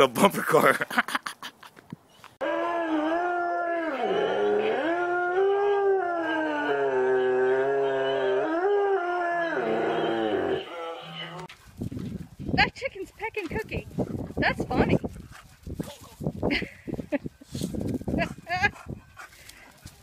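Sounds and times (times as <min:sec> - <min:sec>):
dog howling: 0:02.4 - 0:11.5.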